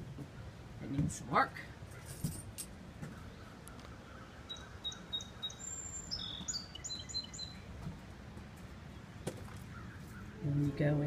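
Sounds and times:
low background noise: 0.0s - 11.0s
songbird chirping and whistling: 4.3s - 7.7s.

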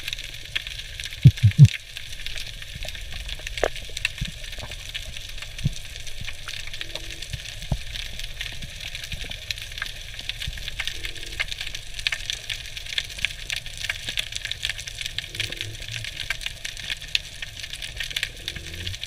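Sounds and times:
underwater crackle of clicks: 0.0s - 19.0s
low underwater rumble: 1.2s - 1.8s
loud thumps: 1.3s - 1.7s.

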